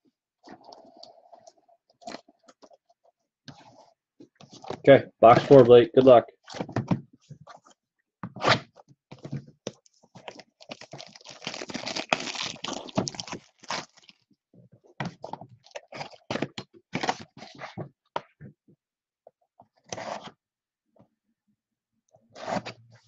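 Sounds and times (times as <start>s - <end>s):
plastic wrap crackling and tearing: 10.2s - 14.3s.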